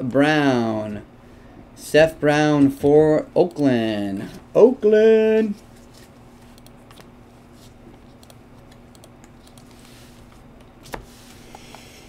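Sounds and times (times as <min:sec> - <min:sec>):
faint steady hum: 0:00.0 - 0:12.0
cards sliding rustle: 0:09.5 - 0:12.0.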